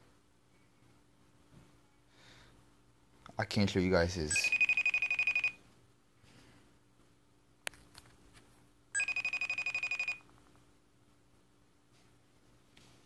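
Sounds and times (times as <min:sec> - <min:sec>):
trilling phone ring: 0:04.3 - 0:05.6, 0:09.0 - 0:10.3.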